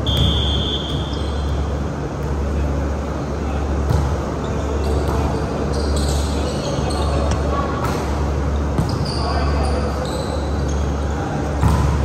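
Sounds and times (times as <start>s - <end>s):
sneakers squeaking on floor: 0.0s - 1.8s, 3.7s - 7.6s, 8.4s - 12.0s
players' voices: 0.0s - 12.0s
steady low hum: 0.0s - 12.0s
volleyball hit by hands: 11.6s - 12.0s.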